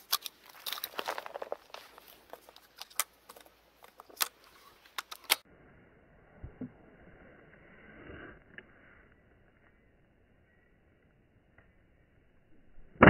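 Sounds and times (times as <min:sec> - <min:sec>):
twigs crackling and snapping: 0:00.0 - 0:05.4.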